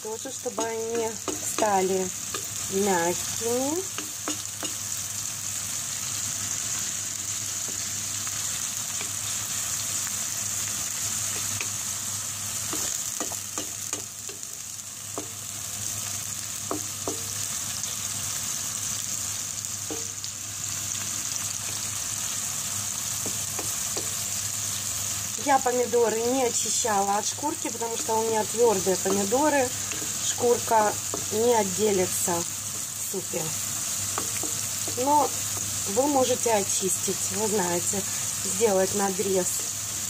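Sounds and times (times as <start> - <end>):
vegetables sizzling in oil: 0.0 - 40.0
spatula scraping and tapping pan: 0.5 - 2.6, 3.8 - 4.8, 7.6 - 7.9, 11.3 - 11.8, 12.6 - 14.5, 15.1 - 15.4, 16.6 - 17.4, 19.9 - 20.2, 23.2 - 24.2, 28.0 - 31.4, 34.0 - 35.8.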